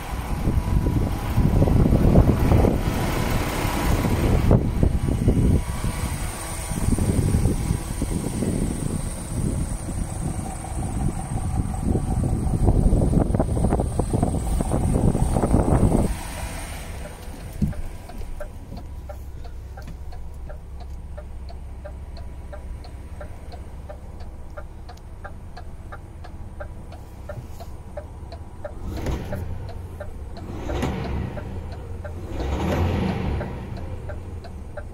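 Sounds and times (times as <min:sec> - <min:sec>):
diesel engine idling: 0:00.0 - 0:34.9
light regular ticking: 0:13.7 - 0:34.9.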